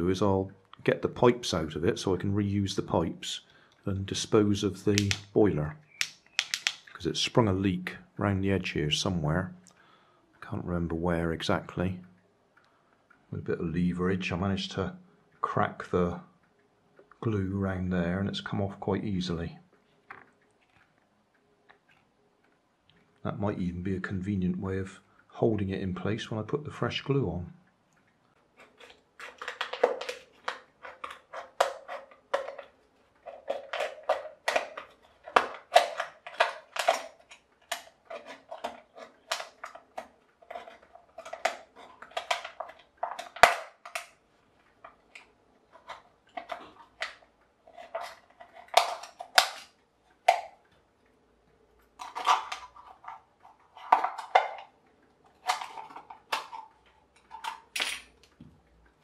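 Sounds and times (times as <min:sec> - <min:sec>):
knife cutting metal can: 0:28.6 - 0:44.0.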